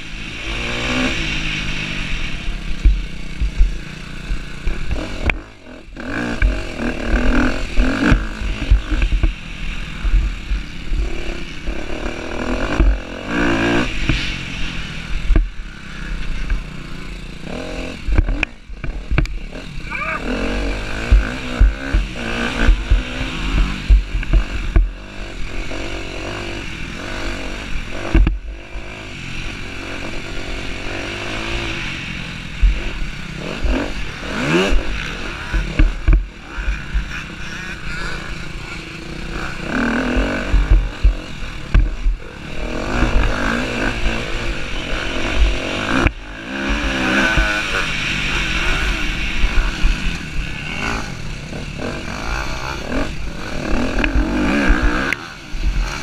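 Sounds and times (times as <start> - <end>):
motocross bike engine revving: 0.0 - 56.0
low thumps: 2.7 - 3.9, 20.9 - 25.0, 28.0 - 28.6, 35.5 - 37.2, 39.2 - 47.6.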